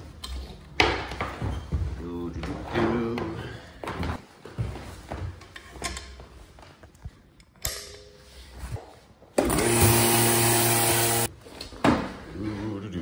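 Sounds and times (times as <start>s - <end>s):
air pump motor humming: 9.5s - 11.3s.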